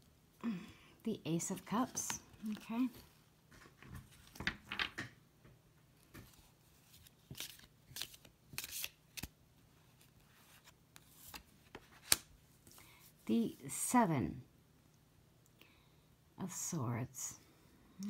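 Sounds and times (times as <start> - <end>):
cards rustling and sliding: 1.5 - 4.9, 6.0 - 12.9.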